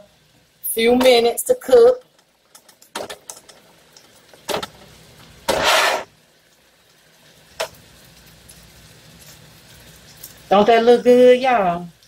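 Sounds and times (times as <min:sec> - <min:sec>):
shrimp sizzling in a pan: 0:00.0 - 0:12.0
spatula scraping a pan: 0:05.5 - 0:06.1.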